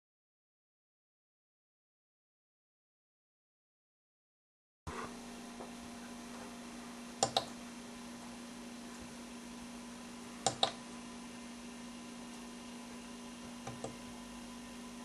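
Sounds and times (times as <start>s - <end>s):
steady electrical hum: 4.9s - 15.0s
switch clicking: 7.2s - 7.5s, 10.4s - 10.8s.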